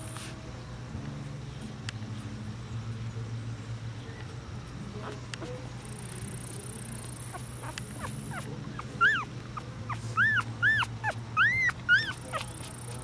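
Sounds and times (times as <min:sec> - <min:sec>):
puppies squeaking and whimpering: 0:06.8 - 0:13.0.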